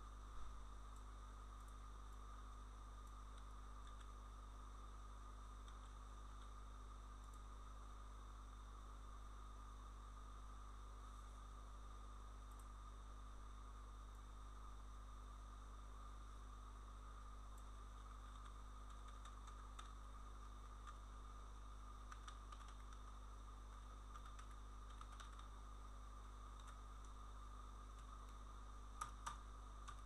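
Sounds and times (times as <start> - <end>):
electrical hum and hiss: 0.0 - 30.0
keyboard typing and clicks: 3.8 - 4.1, 18.2 - 20.0, 22.1 - 23.1, 24.1 - 25.5, 26.6 - 26.8, 29.0 - 30.0.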